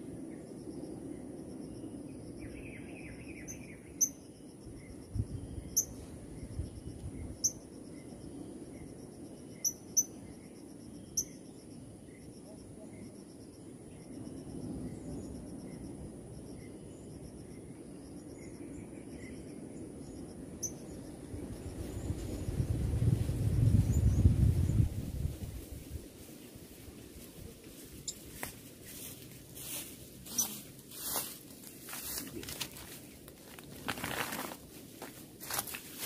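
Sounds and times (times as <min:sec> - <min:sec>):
crickets and cicadas droning: 0:00.0 - 0:36.0
high bird chirps: 0:30.3 - 0:30.6.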